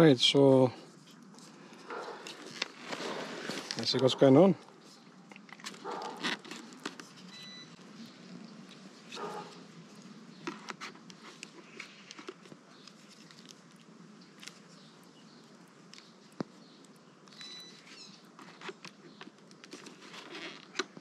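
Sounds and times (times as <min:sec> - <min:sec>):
faint high chirps: 0:16.6 - 0:18.3.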